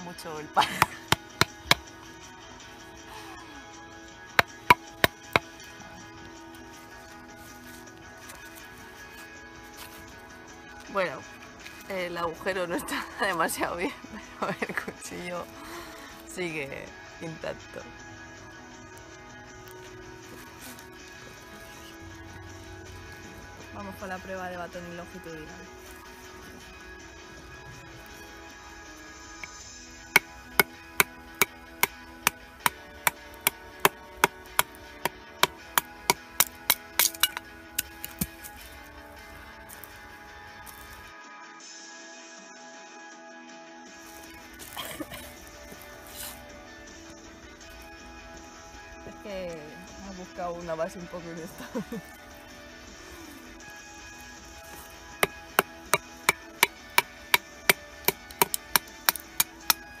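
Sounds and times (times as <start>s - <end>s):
faint background music: 0.0s - 60.0s
baton knocking on knife spine: 4.4s - 5.5s
wooden baton striking knife spine: 30.2s - 38.5s, 58.1s - 59.8s.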